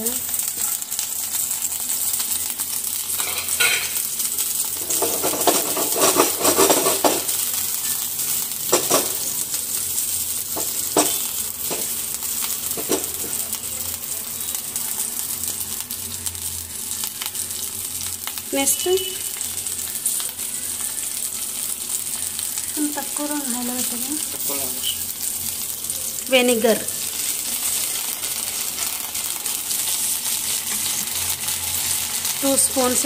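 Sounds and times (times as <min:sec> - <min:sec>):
chillies sizzling in hot oil: 0:00.0 - 0:33.0
utensil scraping a pan: 0:04.8 - 0:07.2
utensil knocking on a pan: 0:10.6 - 0:11.9.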